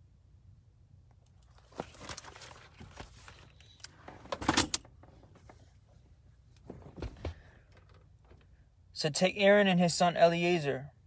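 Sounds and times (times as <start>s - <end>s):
phone handling rustling and scraping: 1.4s - 5.7s.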